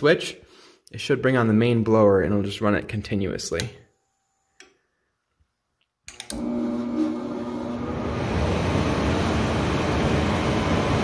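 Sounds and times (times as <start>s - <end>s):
furnace blowers rushing hum: 6.2s - 11.0s.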